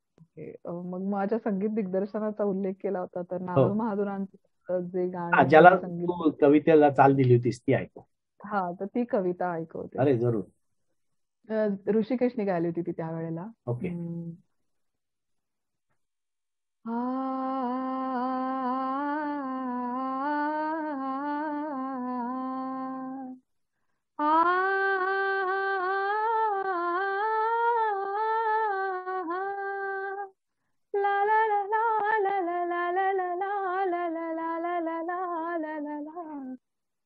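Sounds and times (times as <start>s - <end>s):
woman singing unaccompanied: 0.4s - 6.2s, 16.9s - 23.4s, 24.2s - 30.4s, 31.0s - 36.6s.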